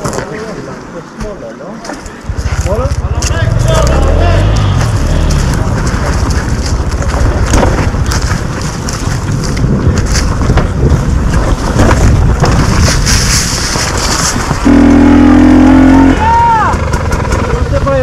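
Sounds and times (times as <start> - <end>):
dirt bike engine at low revs: 2.2 - 18.0
wind on microphone: 2.3 - 16.2
loud steady drone: 3.3 - 5.7, 14.6 - 17.8
knocks from bumpy ground: 4.7 - 14.6.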